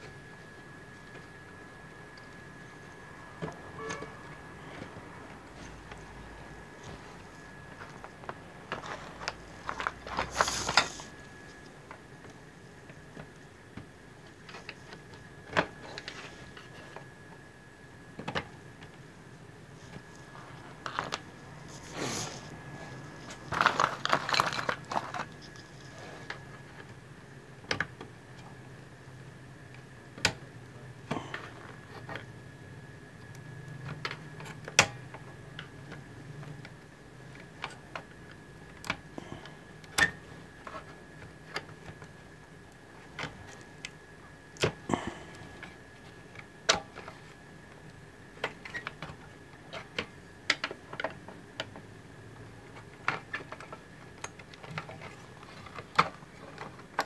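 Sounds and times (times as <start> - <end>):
faint steady high tone: 2.9 - 4.6.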